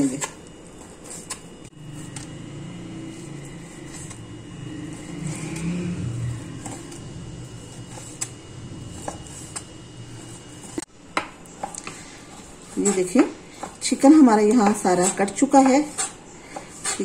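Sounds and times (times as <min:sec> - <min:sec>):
low rumble: 0:01.7 - 0:10.9
knife cutting raw meat: 0:14.6 - 0:17.0.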